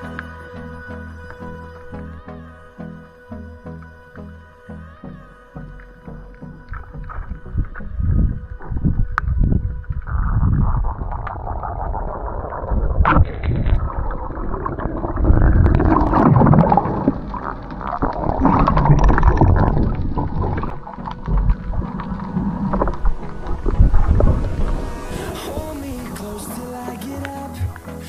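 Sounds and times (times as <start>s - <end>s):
underwater rushing and gurgling water: 5.8s - 28.0s.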